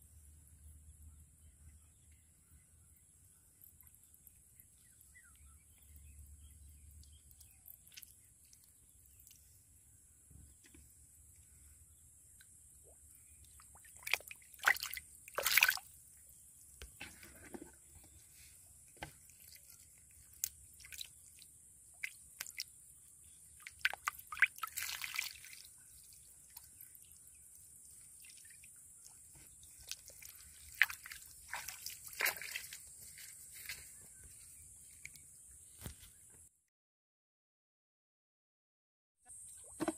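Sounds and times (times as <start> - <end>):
shallow water splashing and dripping: 3.6 - 9.6, 12.3 - 33.8.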